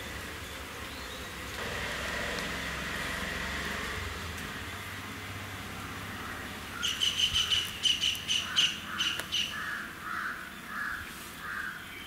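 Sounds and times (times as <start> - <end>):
lower rougher bird calls: 6.1 - 12.0.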